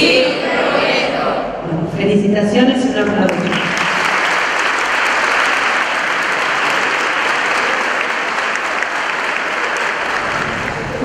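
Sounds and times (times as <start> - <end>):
large crowd applauding: 3.0 - 11.0.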